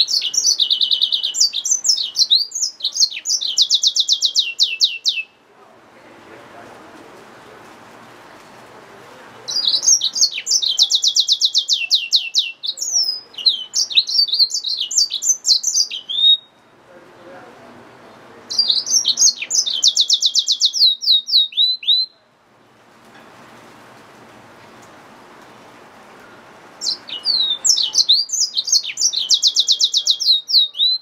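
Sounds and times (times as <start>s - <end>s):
finch singing trills and twitters: 0.0s - 5.3s, 9.5s - 16.6s, 18.5s - 22.1s, 26.8s - 31.0s.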